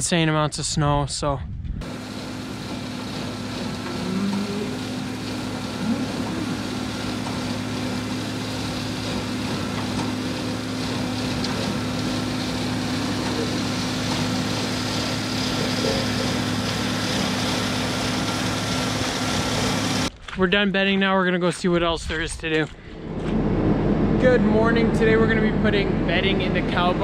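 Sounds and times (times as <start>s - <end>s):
bale processor shredding straw: 1.8s - 20.1s, 24.2s - 27.0s
tractor engine running: 1.8s - 20.3s, 22.5s - 27.0s.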